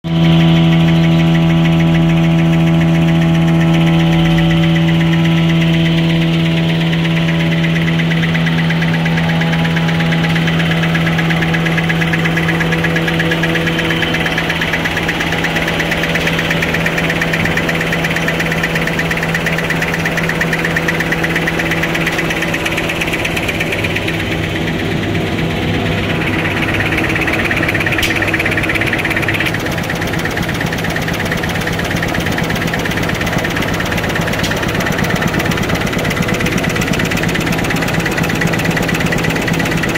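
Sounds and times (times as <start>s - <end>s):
machine humming: 0.0s - 39.9s
rapid mechanical clatter: 0.1s - 39.9s.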